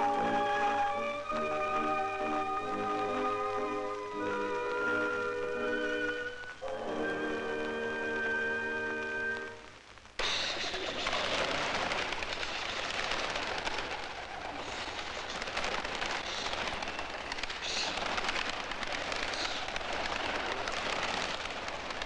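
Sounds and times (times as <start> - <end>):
doves flapping wings: 0.0 - 22.0.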